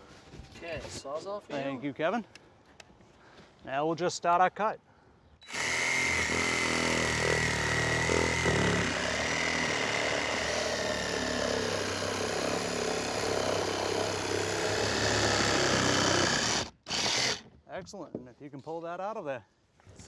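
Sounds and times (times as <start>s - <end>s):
reciprocating saw cutting wood: 5.5s - 17.4s.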